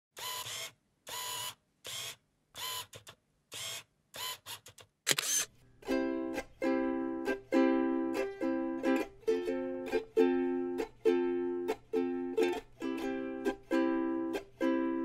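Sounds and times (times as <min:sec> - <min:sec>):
camera shutter clicks: 0:03.6 - 0:05.5
plucked-string music: 0:05.8 - 0:15.0.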